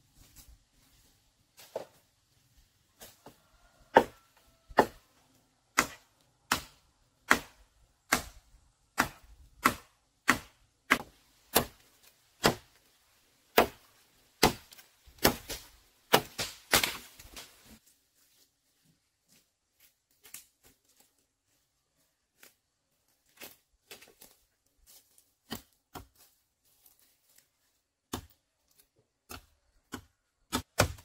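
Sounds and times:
bamboo being chopped: 3.9 - 5.0, 5.7 - 12.8, 13.5 - 17.6, 25.4 - 26.3, 28.1 - 28.4, 29.2 - 31.0.

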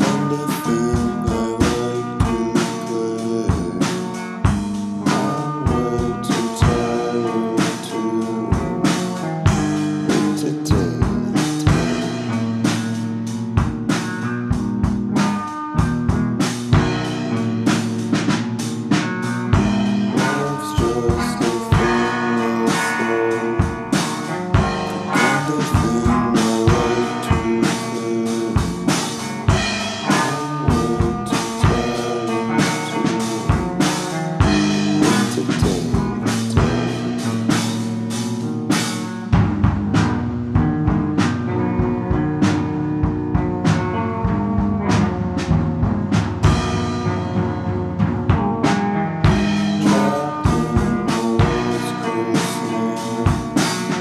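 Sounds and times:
drum-kit beat: 0.0 - 54.0
electric guitar: 0.0 - 54.0
keyboard: 0.0 - 54.0.

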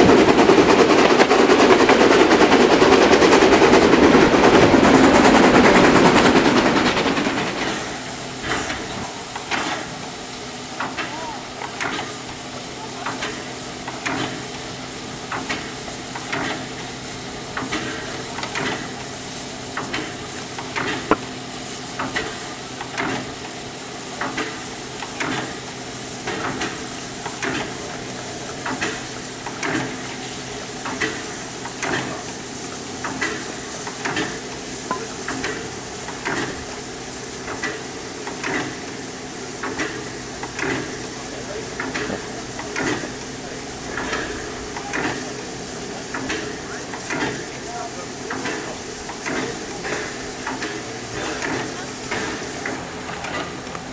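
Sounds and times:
steam hiss: 0.0 - 53.9
locomotive air pump beating: 10.7 - 53.9.

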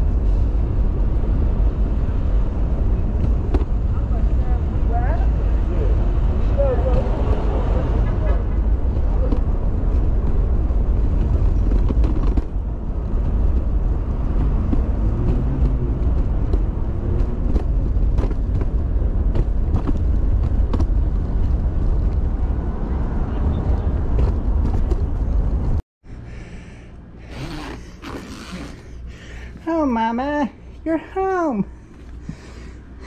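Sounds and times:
stroller wheels rolling on pavement: 2.7 - 25.8.

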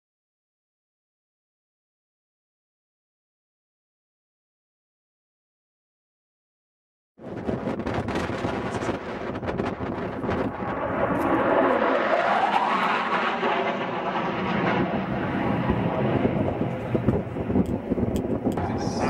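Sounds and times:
jet flying low pass: 7.2 - 19.0.

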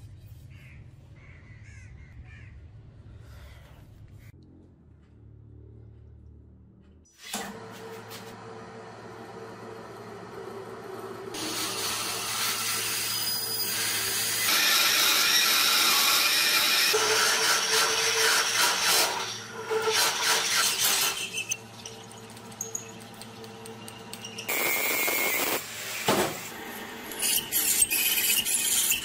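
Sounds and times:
lathe motor hum: 7.5 - 11.4
drill cutting brass: 11.4 - 21.6, 24.0 - 29.0.

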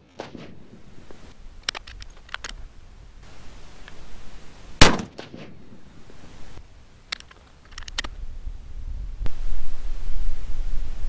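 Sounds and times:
rifle shot: 0.0 - 1.2, 4.8 - 6.0
faint clicks: 0.2 - 2.7, 7.1 - 8.2.

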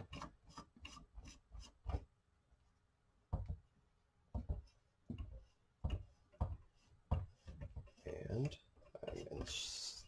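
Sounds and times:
soft knocks and rubs: 4.3 - 9.7.

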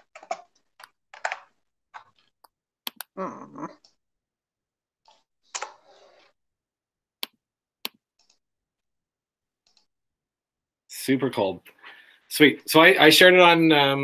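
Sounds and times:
computer mouse clicking: 2.0 - 3.1.

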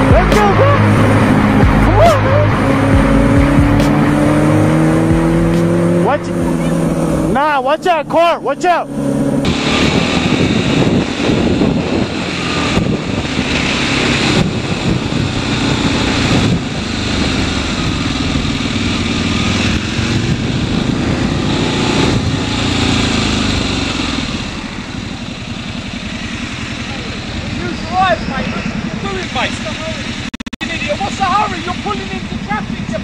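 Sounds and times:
motorcycle engine revving: 0.0 - 33.0
wind noise on microphone: 9.3 - 23.2.

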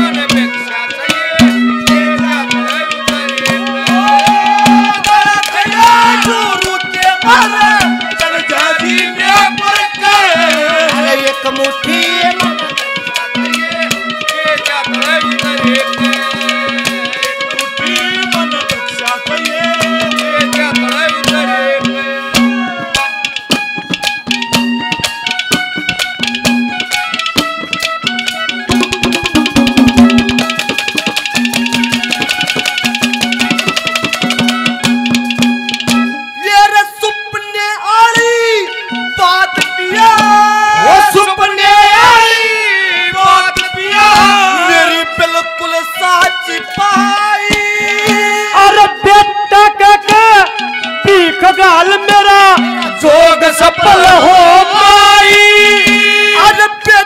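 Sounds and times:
fast hand drum strokes: 0.0 - 36.2, 50.0 - 57.0
folk melody with sliding notes: 0.0 - 57.0.

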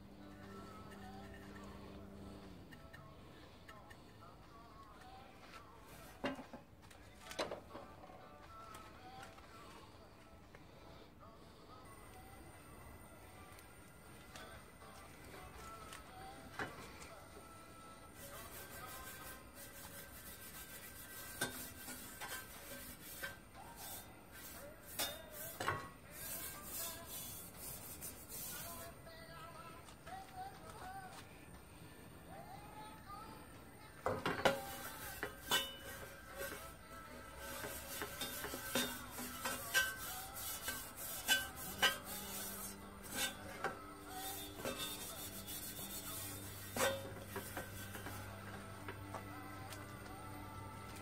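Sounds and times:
background music with held notes: 0.0 - 51.0
metal wool scraping a pan: 18.2 - 28.8, 34.1 - 49.0.

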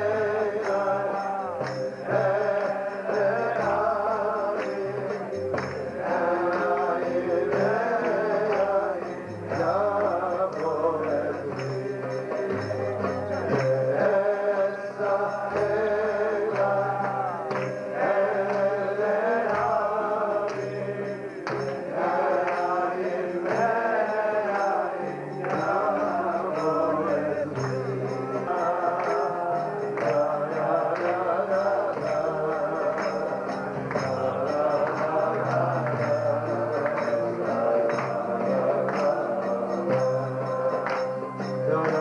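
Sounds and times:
man singing lead: 0.0 - 42.0
men singing along: 0.0 - 42.0.

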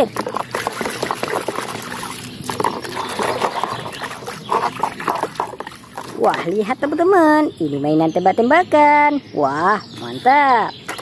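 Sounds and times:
brush scrubbing under water: 0.0 - 6.7
water sloshing in a tub: 0.0 - 7.6.

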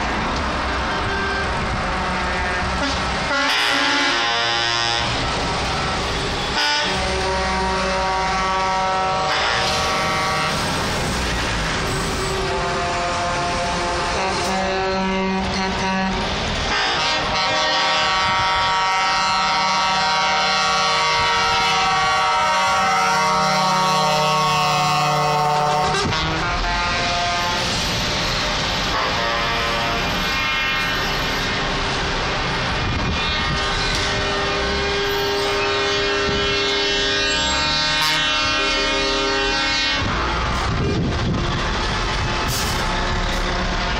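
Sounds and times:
trucks driving past: 0.0 - 43.9
long steady air horn: 1.0 - 5.2, 6.1 - 10.8, 11.4 - 31.6, 32.8 - 43.9.

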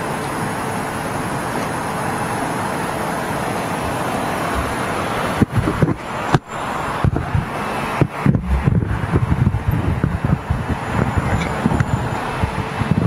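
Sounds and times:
distant jet aircraft roar: 0.0 - 13.0
road traffic: 0.0 - 13.0
wind buffeting microphone: 3.7 - 13.0.

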